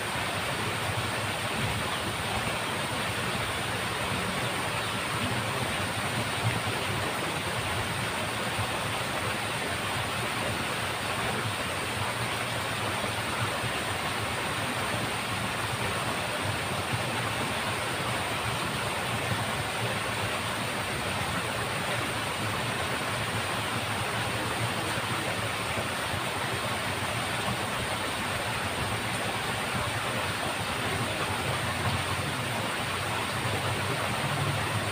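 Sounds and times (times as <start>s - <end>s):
water rushing in ditch: 0.0s - 34.9s.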